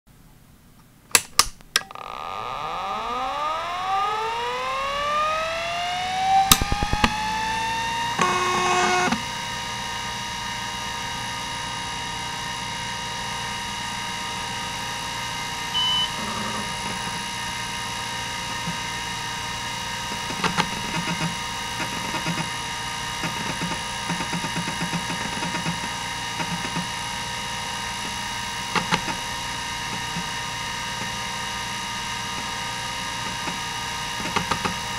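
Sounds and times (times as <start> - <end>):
hard drive spindle whine: 1.8 - 34.9
loud buzz: 1.9 - 10.1
stepper motor seek ticking: 3.5 - 9.2
short high beep: 15.8 - 16.2
hard drive clicks: 20.2 - 22.5, 23.2 - 27.0, 28.0 - 29.2, 34.2 - 34.9.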